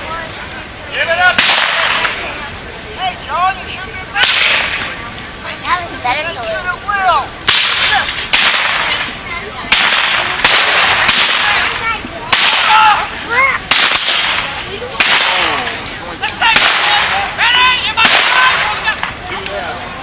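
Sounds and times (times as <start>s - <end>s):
musket shots echoing: 1.4s - 2.2s, 4.2s - 4.9s, 7.5s - 13.0s, 13.7s - 15.8s, 16.5s - 17.3s, 18.0s - 18.8s.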